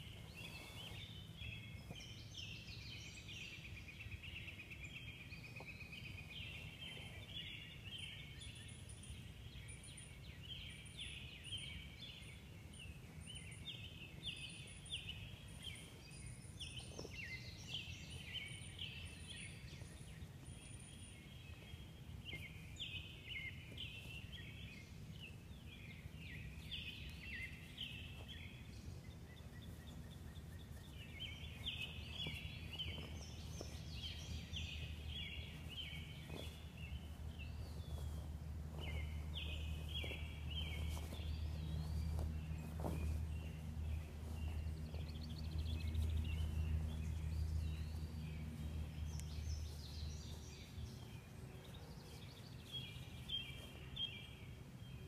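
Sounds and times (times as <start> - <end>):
birds chirping and singing: 0.0 - 55.0
faint low rumble: 12.0 - 55.0.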